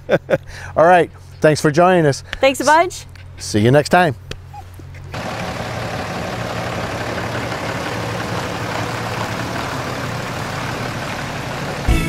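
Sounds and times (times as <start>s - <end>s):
pickup truck engine running: 5.1s - 12.0s.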